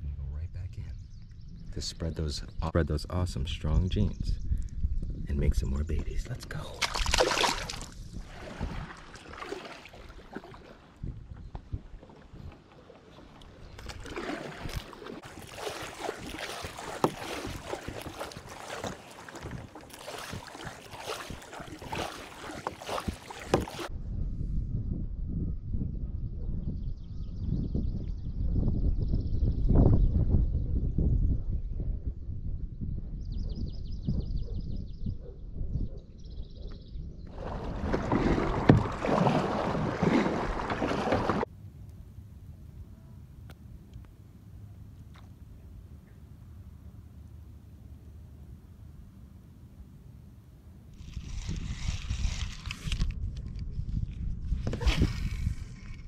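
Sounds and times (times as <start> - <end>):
low rumbling: 0.0 - 6.4
splashing and dripping water: 6.7 - 23.9, 37.3 - 41.5
paddle strokes in water: 6.8 - 23.9, 37.3 - 41.5, 51.0 - 53.6, 54.4 - 56.0
paddle knocking on kayak: 8.4 - 23.9, 37.4 - 41.5.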